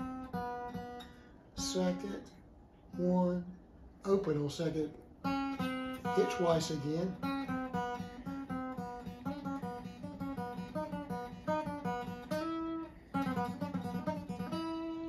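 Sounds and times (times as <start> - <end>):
acoustic guitar picked lick: 0.0 - 2.3, 5.1 - 15.0.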